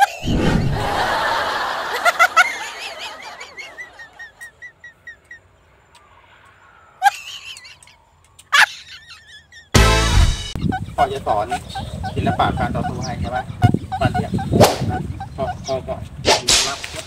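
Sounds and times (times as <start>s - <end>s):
burst of laughter: 0.0s - 4.6s.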